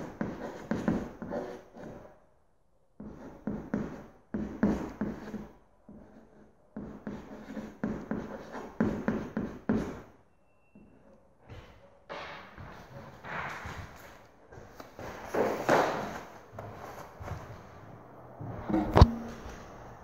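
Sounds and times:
chalk scratching on chalkboard: 0.0 - 2.1, 3.0 - 10.0.

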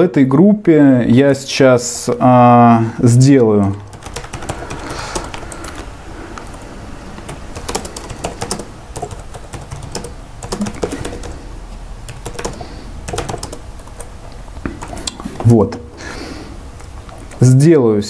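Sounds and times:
computer keyboard typing: 3.3 - 6.6, 7.2 - 11.4, 12.0 - 15.5.

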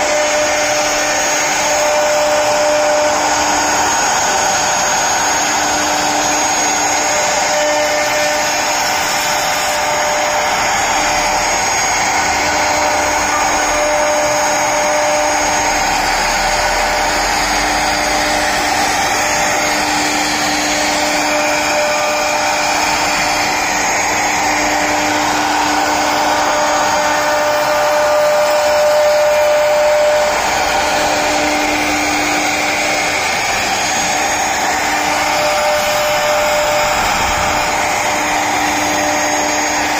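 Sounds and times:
router spindle cutting wood: 0.0 - 39.9.

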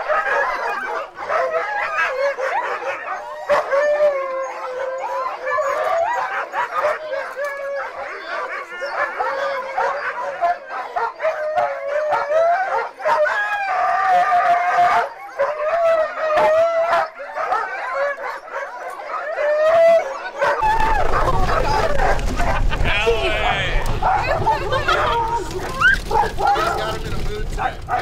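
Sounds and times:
sled dogs howling and barking: 0.0 - 28.0
cart rumbling: 20.6 - 28.0.

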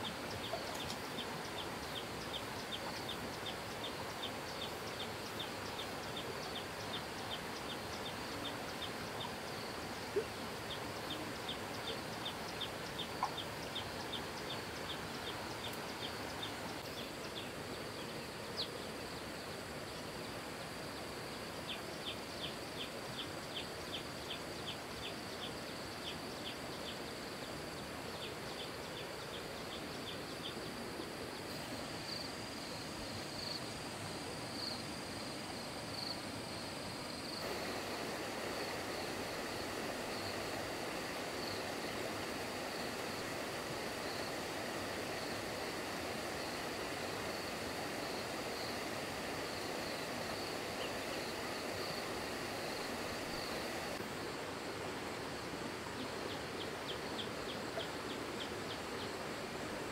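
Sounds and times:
background hiss: 0.0 - 59.9
insects chirping: 0.0 - 59.9
high insect buzz: 28.1 - 54.1.

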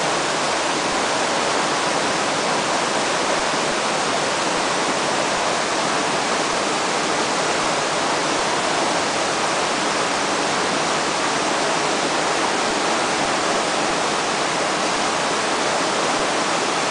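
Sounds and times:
river rushing: 0.0 - 16.9.

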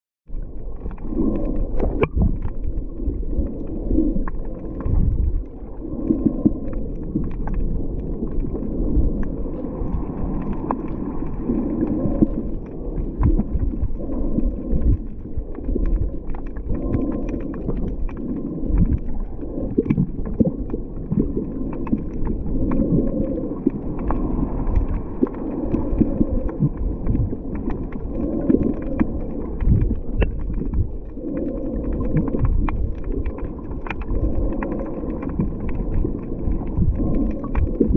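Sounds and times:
muffled underwater water surge: 0.3 - 37.9.

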